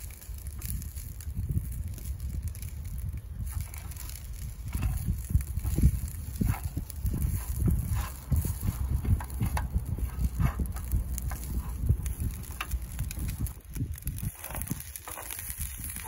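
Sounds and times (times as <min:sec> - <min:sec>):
gas stove low rumble: 0:00.1 - 0:16.0
spatula scraping rice in pan: 0:03.4 - 0:13.4, 0:14.2 - 0:16.0.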